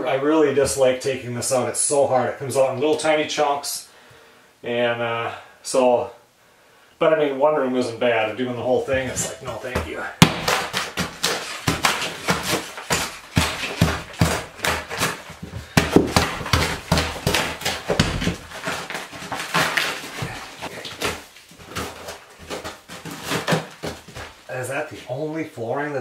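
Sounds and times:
hammer and pry bar chipping floor: 0:09.0 - 0:24.5.

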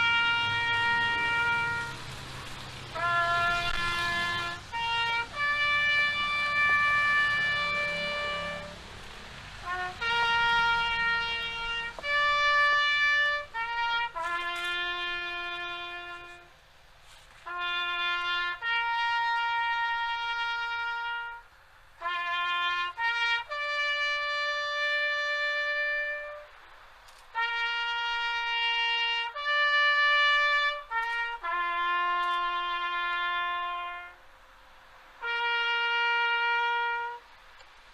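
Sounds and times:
solo trumpet playing: 0:00.0 - 0:02.2, 0:02.9 - 0:08.9, 0:09.5 - 0:16.6, 0:17.4 - 0:26.7, 0:27.3 - 0:34.4, 0:35.1 - 0:37.6.

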